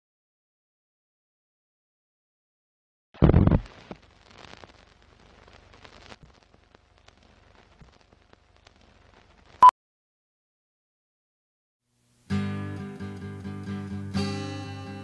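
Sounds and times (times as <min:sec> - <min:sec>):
old film crackle with clicks: 0:03.3 - 0:09.6.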